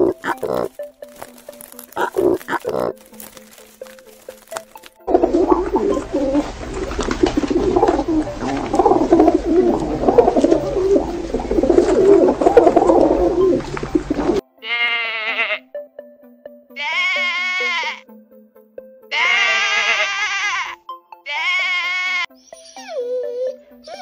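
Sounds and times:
pigeons cooing: 0.0 - 3.4, 5.1 - 14.4
lamb bleating: 14.6 - 15.7, 16.8 - 18.0, 19.1 - 22.3.

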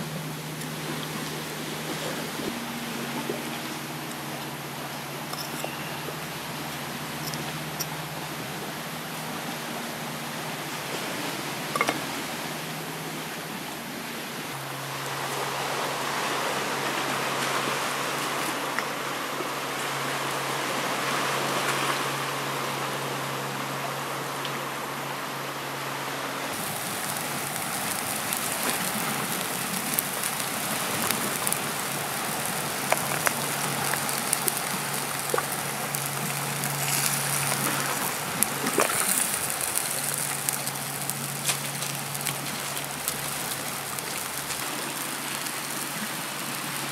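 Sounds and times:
outdoor hiss: 26.5 - 46.9
wood fire crackling and popping: 26.6 - 46.8.

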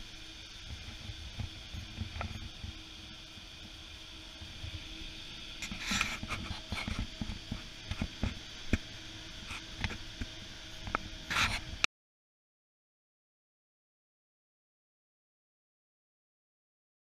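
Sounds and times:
steady room hum: 0.0 - 11.9.

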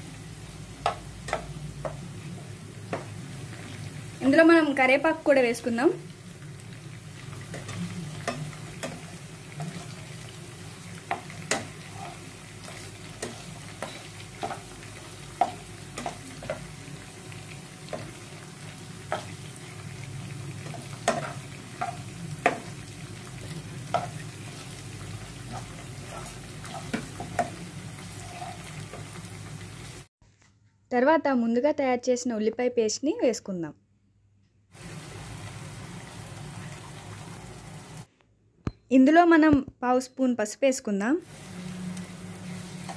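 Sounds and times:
food frying in hot oil: 0.0 - 30.1, 34.8 - 38.1, 41.2 - 42.9
spatula scraping pan: 7.2 - 17.0, 17.6 - 19.6, 20.6 - 29.3.

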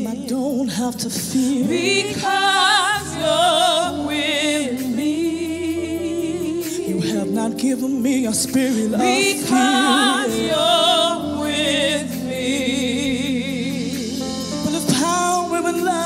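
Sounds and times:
band with keyboard and bass: 0.0 - 16.0
woman singing with vibrato: 1.4 - 7.4, 9.0 - 13.8.

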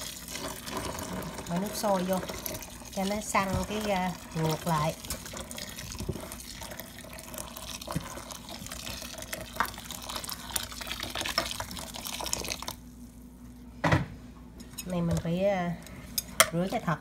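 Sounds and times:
water pouring into a basin: 4.1 - 12.8.

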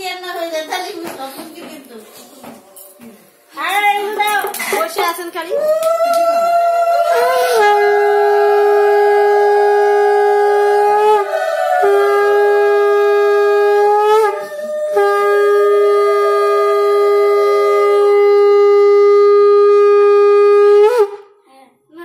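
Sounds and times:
conch shell blasts: 7.2 - 21.4.

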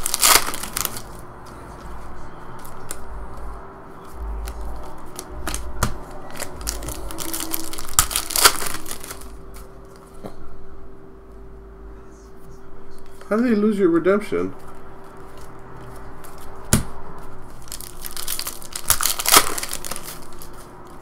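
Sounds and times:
plastic wrapper crinkling: 0.0 - 1.3, 4.4 - 10.0, 17.5 - 21.0
faint hum: 0.0 - 21.0.

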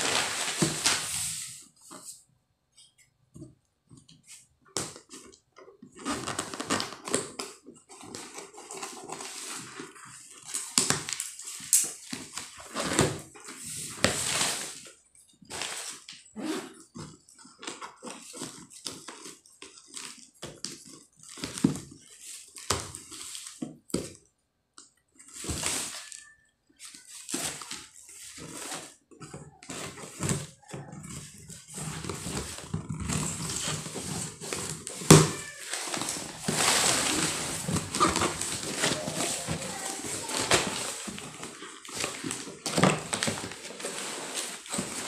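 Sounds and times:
cardboard flaps scraping: 0.0 - 1.7, 31.2 - 45.0
paper tearing and crumpling: 31.7 - 45.0.

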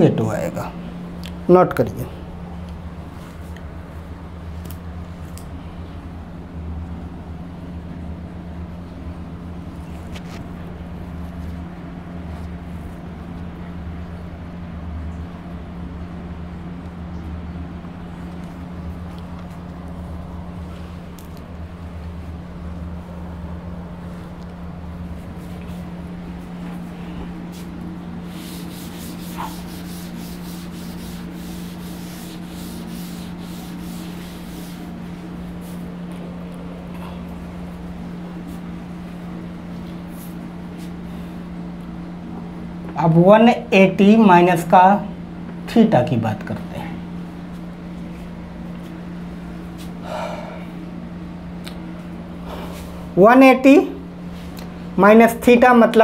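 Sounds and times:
low hum: 0.0 - 55.5
scratchy writing on a board: 28.3 - 34.8
person breathing: 50.0 - 50.8.

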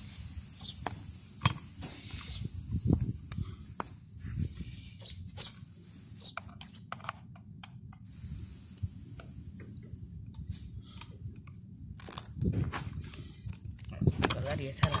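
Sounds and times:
air hissing from tyre valve: 0.0 - 6.8, 8.0 - 11.4
wind on microphone: 1.9 - 5.0, 12.2 - 15.0.

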